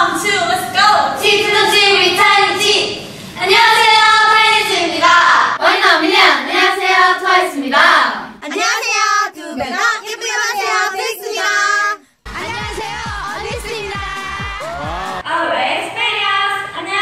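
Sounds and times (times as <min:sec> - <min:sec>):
women chanting in unison: 0:01.1 - 0:15.3.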